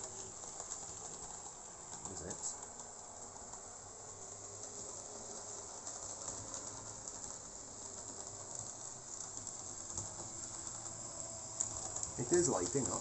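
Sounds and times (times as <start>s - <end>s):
wheels clicking on track: 0.0s - 13.0s
model train motor whir: 3.2s - 13.0s.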